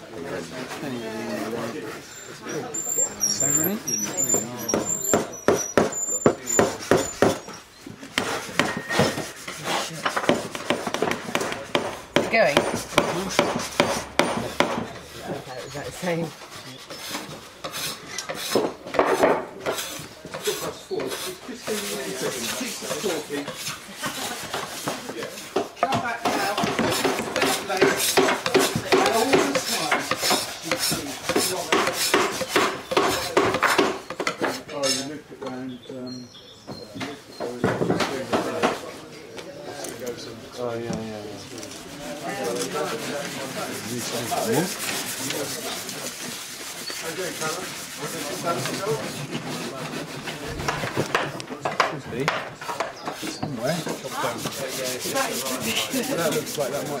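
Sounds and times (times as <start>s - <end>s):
hand tool rasping on wood: 1.4s - 18.8s, 19.6s - 34.6s, 42.2s - 51.3s, 53.1s - 57.0s.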